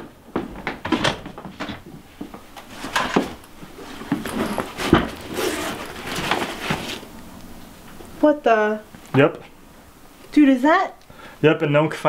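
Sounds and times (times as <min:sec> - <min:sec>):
closet door opening: 0:00.6 - 0:01.9
backpack rustling: 0:02.6 - 0:07.2.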